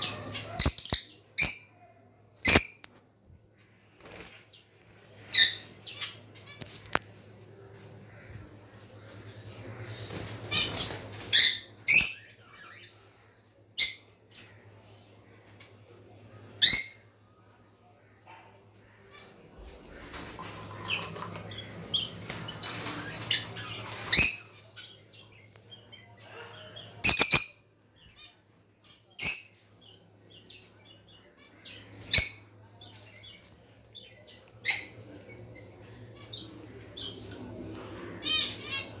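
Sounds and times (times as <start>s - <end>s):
cage birds chirping: 0.0s - 39.0s
wings fluttering: 3.9s - 5.4s, 6.5s - 11.4s, 19.6s - 24.2s.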